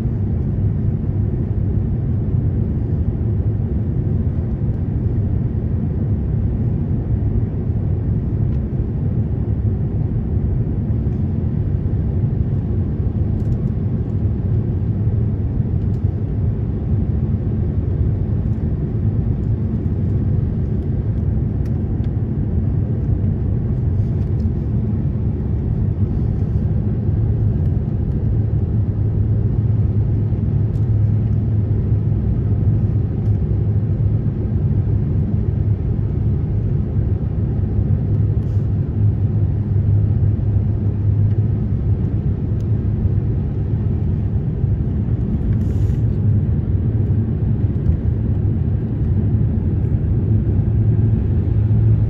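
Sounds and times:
airflow around aircraft: 0:00.0 - 0:52.0
airplane cabin engine rumble: 0:00.0 - 0:52.0.

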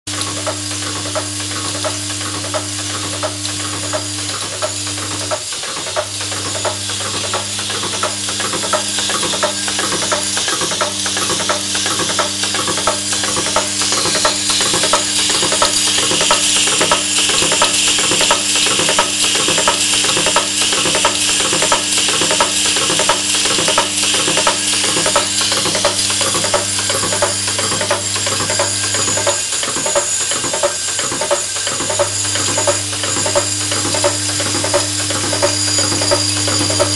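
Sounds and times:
assembly machine clattering: 0:00.1 - 0:36.9
bowl feeder humming: 0:00.1 - 0:36.9.

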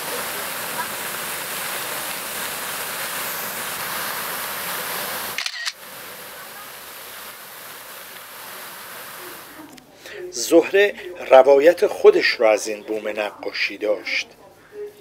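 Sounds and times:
falling water rushing: 0:00.0 - 0:09.7
water splashing: 0:00.0 - 0:09.7.

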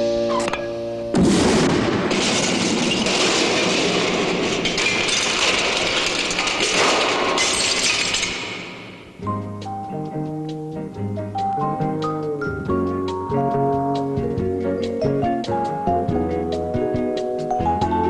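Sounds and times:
cartoon explosion blast: 0:01.1 - 0:04.4
crashing and clattering: 0:01.2 - 0:09.2
jazz music: 0:09.2 - 0:18.0.

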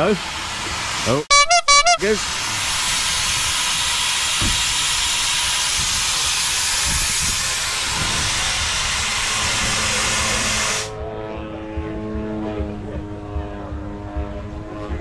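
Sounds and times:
steam hissing: 0:00.0 - 0:11.0.

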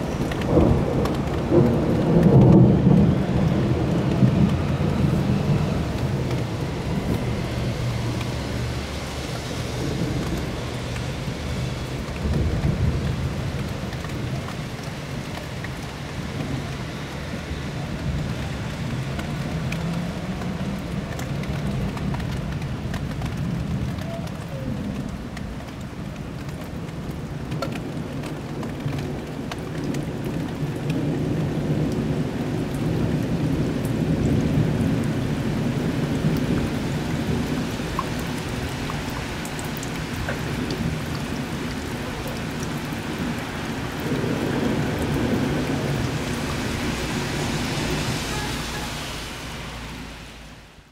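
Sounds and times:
heavy rain falling: 0:00.0 - 0:50.9
rolls of thunder: 0:00.2 - 0:06.4.

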